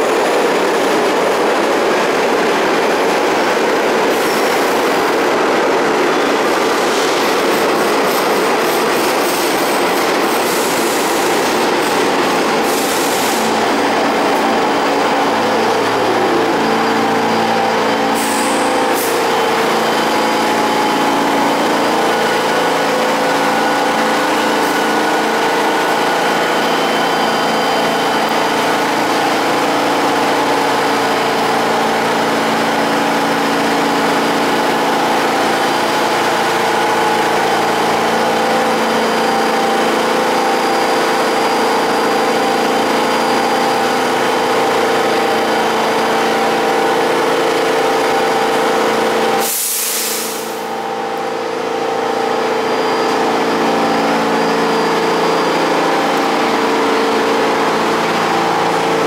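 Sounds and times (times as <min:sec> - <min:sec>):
subway car equipment humming: 0:00.0 - 0:59.0
sharp hiss of released air: 0:12.6 - 0:13.5, 0:49.4 - 0:50.7.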